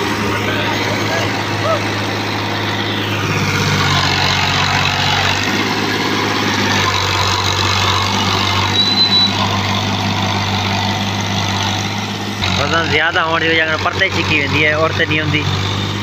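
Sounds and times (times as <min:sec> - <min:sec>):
tractor diesel engine running: 0:00.0 - 0:16.0
short high squeak: 0:08.7 - 0:09.5.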